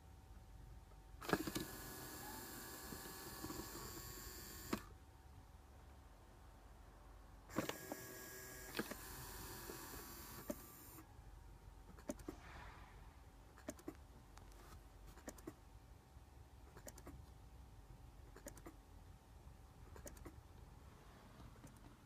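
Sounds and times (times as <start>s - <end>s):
faint steady hum: 0.0s - 22.0s
faint servo motor clicks: 1.2s - 4.9s, 7.5s - 11.0s.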